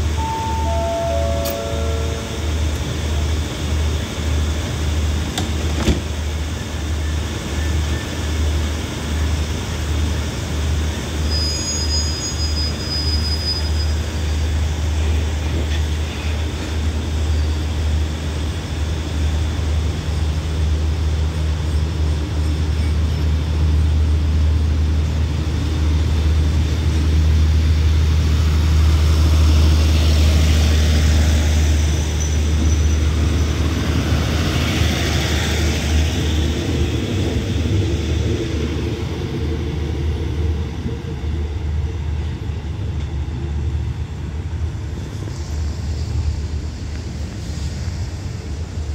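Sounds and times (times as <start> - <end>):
diesel engine drone: 0.0 - 11.0
train wheels on rails: 0.0 - 48.9.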